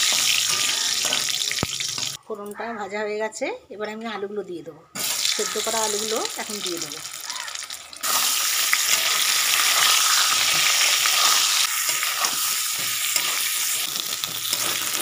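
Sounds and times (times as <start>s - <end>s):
metal spatula stirring: 0.0s - 2.2s, 8.0s - 15.0s
potatoes sizzling in hot oil: 0.0s - 2.2s, 5.0s - 15.0s.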